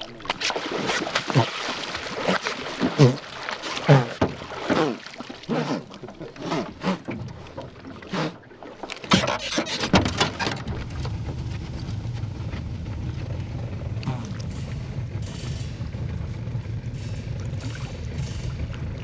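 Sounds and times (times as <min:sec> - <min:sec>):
water splashing: 0:00.0 - 0:16.3, 0:17.0 - 0:19.0
low motor hum: 0:09.2 - 0:19.0.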